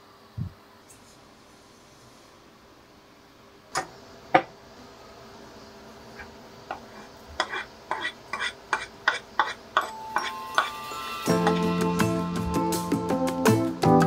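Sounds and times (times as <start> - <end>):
metal spoon scraping cutting board: 6.8 - 10.7
dishes knocking: 8.8 - 10.7.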